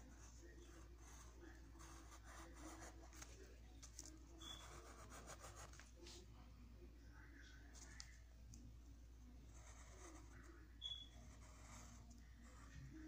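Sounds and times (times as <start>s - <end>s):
pencil scratching on paper: 0.0s - 3.5s, 4.4s - 5.8s, 9.4s - 13.0s.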